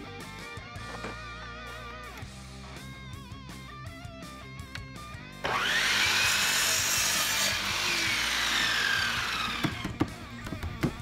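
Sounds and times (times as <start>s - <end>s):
miter saw cutting wood: 5.4s - 10.1s.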